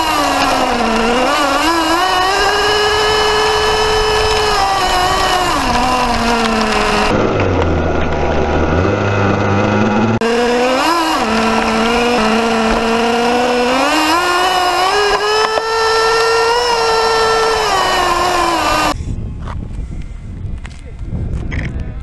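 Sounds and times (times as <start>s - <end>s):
toy car motor buzzing: 0.0s - 7.1s, 10.2s - 19.0s.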